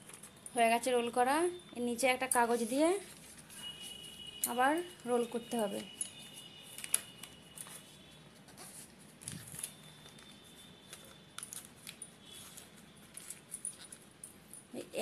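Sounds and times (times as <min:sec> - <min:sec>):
thin paper rustling and crinkling: 0:08.4 - 0:10.3.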